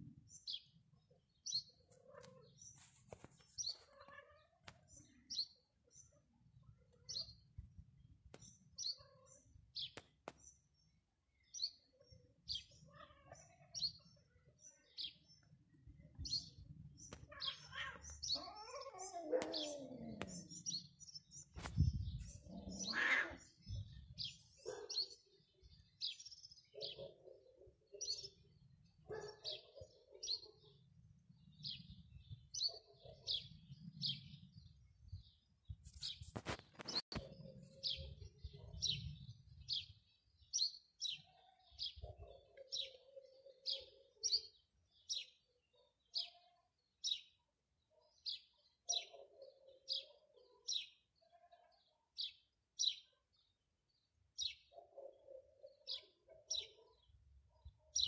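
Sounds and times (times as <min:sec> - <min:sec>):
small birds chirping: 0:00.0 - 0:58.0
cats yowling: 0:17.2 - 0:20.5, 0:22.4 - 0:23.5.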